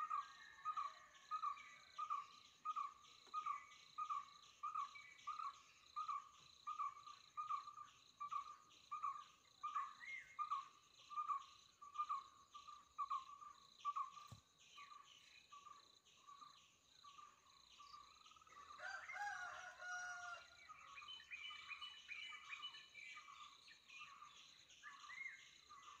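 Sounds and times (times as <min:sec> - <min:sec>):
bird calls: 0:00.0 - 0:26.0.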